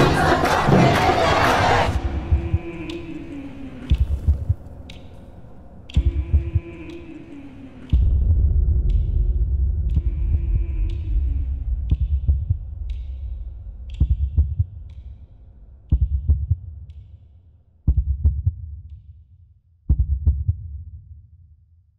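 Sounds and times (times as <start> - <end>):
low drone: 1.8 - 15.9
deep bass thumps: 3.9 - 4.7, 8.0 - 16.9.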